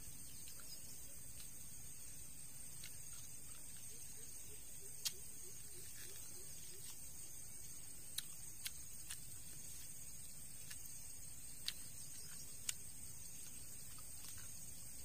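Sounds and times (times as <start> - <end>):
person chewing: 8.1 - 9.9, 11.5 - 12.8, 13.4 - 14.6.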